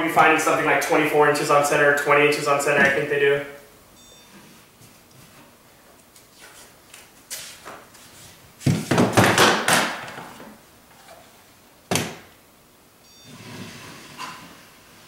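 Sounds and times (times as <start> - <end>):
faint electronic beeps: 3.5 - 4.5, 13.0 - 13.4
rustling and scraping: 6.2 - 9.2.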